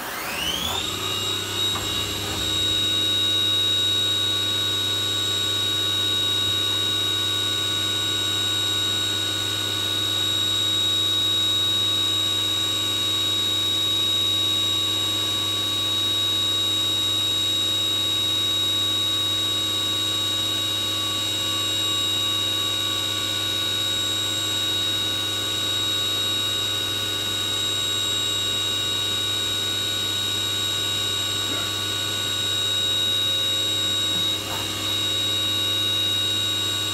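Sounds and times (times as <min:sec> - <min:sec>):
machine low hum: 0:00.0 - 0:08.2, 0:29.0 - 0:36.9
machine high-pitched whine: 0:00.0 - 0:36.9.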